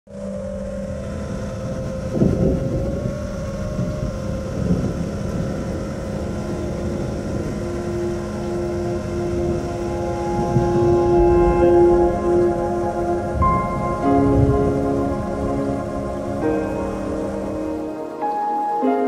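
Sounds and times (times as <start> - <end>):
drone motors whining: 0.1 - 18.6
wind rush: 0.1 - 18.8.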